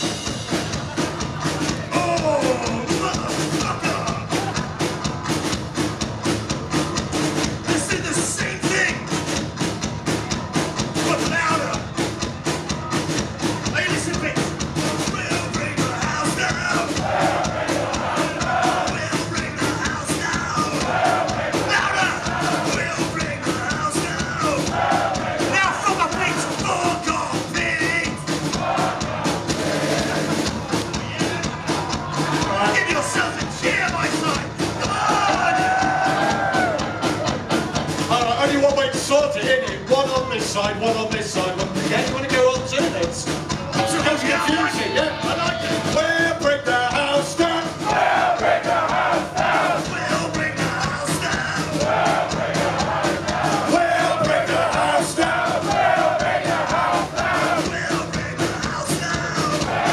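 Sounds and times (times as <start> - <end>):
drums: 0.0 - 59.9
shouted vocals: 15.2 - 37.5, 43.6 - 46.3, 46.9 - 59.9.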